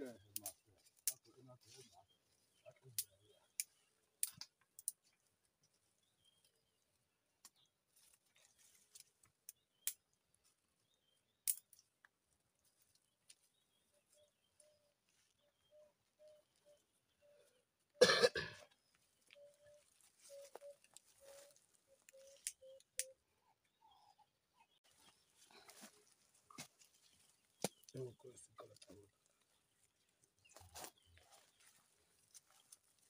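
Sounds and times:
dry twigs snapping: 0:11.4 - 0:12.1
person coughing: 0:18.0 - 0:18.7.

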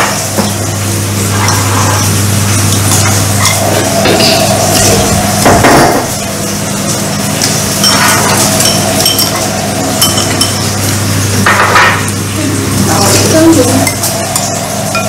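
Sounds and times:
steady low hum: 0:00.0 - 0:15.0
utensils clinking on ceramic bowls: 0:02.7 - 0:04.9, 0:07.4 - 0:12.1, 0:12.8 - 0:15.0.

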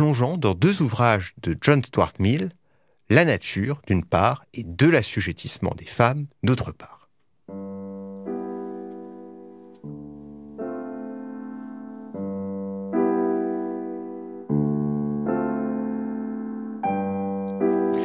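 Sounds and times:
slow piano chords: 0:07.4 - 0:18.0.

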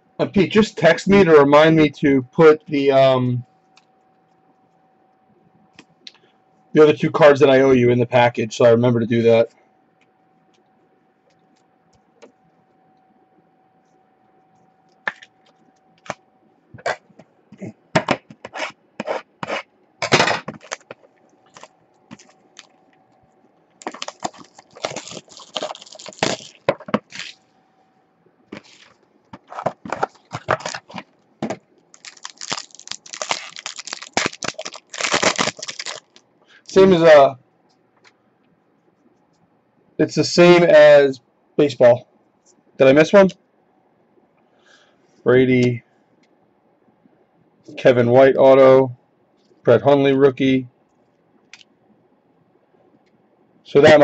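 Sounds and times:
plastic wrapping crinkling and tearing: 0:20.3 - 0:22.8, 0:23.8 - 0:27.4, 0:28.6 - 0:31.2, 0:31.9 - 0:36.2.

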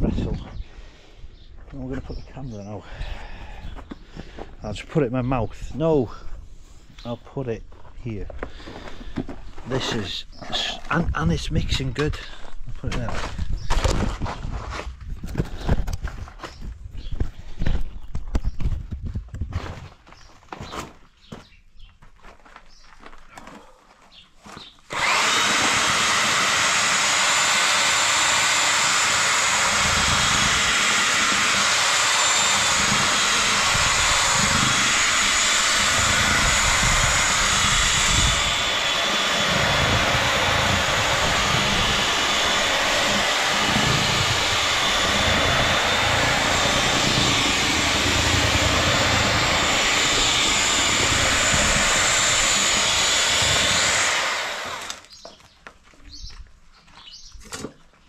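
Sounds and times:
electric drill mixing mortar: 0:24.6 - 0:55.2.

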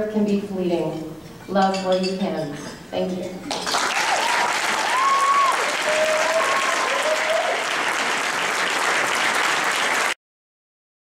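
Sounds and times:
audience applauding: 0:03.5 - 0:10.2.

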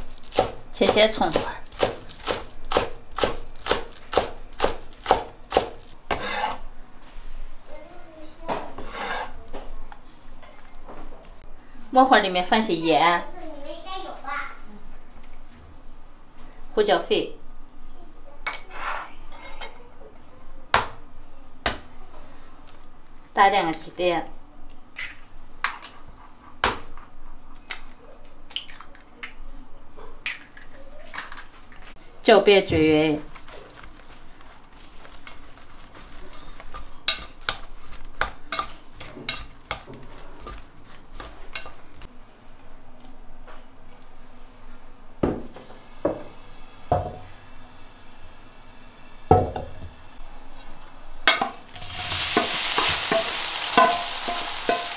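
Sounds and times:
blade scraping across board: 0:06.1 - 0:06.6, 0:08.8 - 0:09.4.

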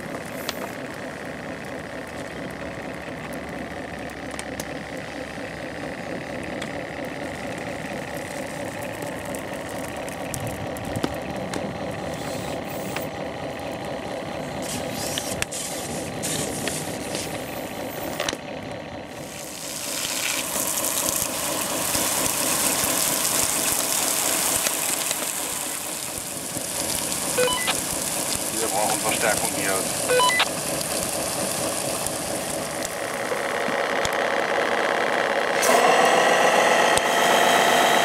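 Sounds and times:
flames crackling and popping: 0:00.0 - 0:36.2
pressurised gas jet hissing: 0:14.6 - 0:17.4.

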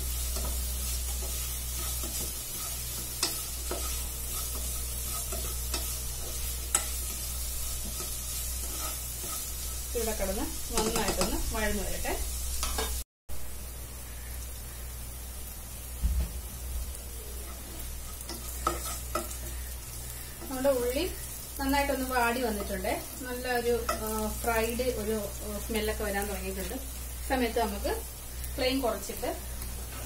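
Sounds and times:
onions sizzling in a pan: 0:00.0 - 0:30.0
spatula scraping a pot: 0:00.4 - 0:09.9, 0:17.4 - 0:20.6.

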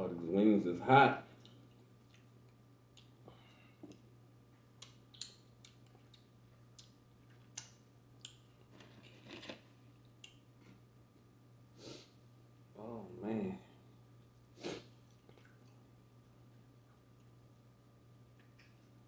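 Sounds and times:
low steady hum: 0:00.0 - 0:19.0
mouth chewing wet smacks: 0:01.4 - 0:02.3, 0:04.8 - 0:08.5, 0:14.6 - 0:15.8.

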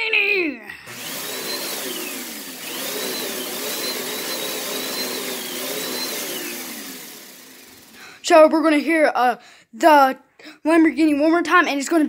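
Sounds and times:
electric motor whining: 0:00.9 - 0:08.2.

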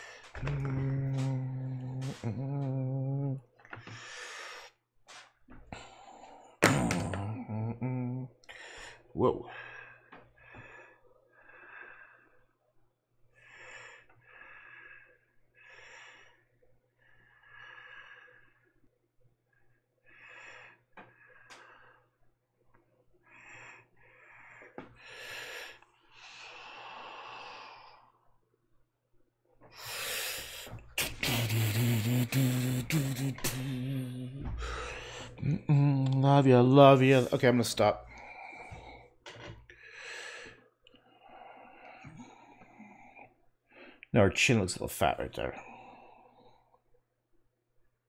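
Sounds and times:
man breathing close to microphone: 0:00.0 - 0:06.6, 0:08.4 - 0:12.6, 0:13.3 - 0:18.9, 0:23.2 - 0:28.4, 0:29.6 - 0:35.4, 0:38.0 - 0:44.1
low hum: 0:00.4 - 0:03.4.

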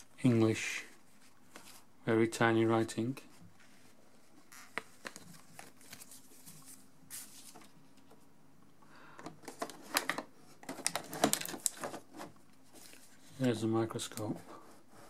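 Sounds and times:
plastic packaging crinkling: 0:04.5 - 0:07.6, 0:09.4 - 0:13.2
paper handling: 0:04.6 - 0:08.1.

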